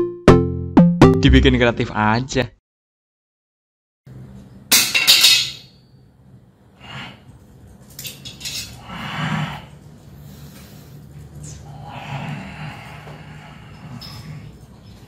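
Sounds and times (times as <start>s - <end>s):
metal pots and utensils clanking: 4.7s - 5.7s, 8.0s - 8.8s.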